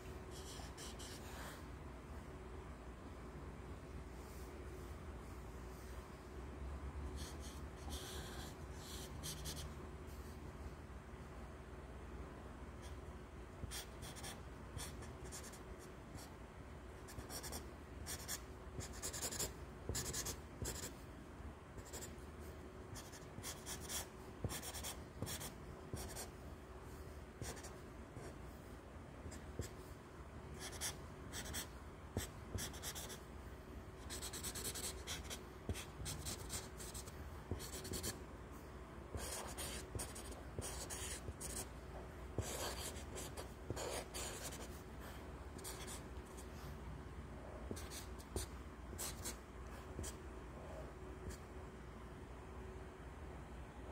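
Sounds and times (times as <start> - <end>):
marker scratching on paper: 0.3 - 1.6, 7.2 - 9.6, 13.6 - 15.6, 17.1 - 20.9, 21.8 - 22.1, 23.0 - 26.3, 27.4 - 28.3, 30.6 - 33.2, 34.0 - 38.2, 39.1 - 41.7, 42.4 - 44.8, 45.6 - 46.5, 47.7 - 49.4.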